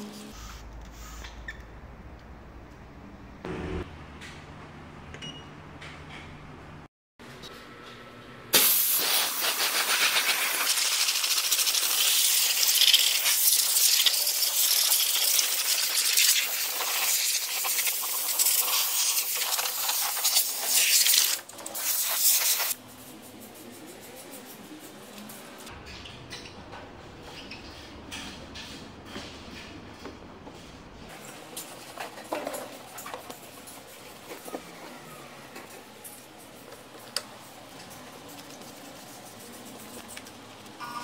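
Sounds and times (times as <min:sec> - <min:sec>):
steam cleaner hissing: 0:08.6 - 0:22.8.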